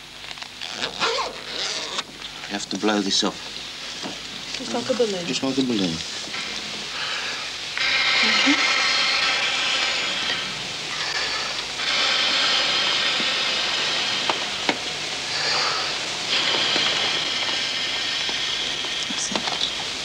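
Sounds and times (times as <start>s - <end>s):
air blown through tube hissing: 6.1s - 20.0s.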